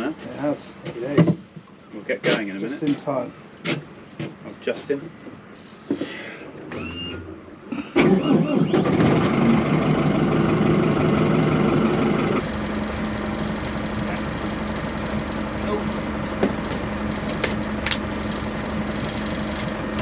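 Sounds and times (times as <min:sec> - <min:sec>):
boat engine starting and idling: 0:06.5 - 0:20.0.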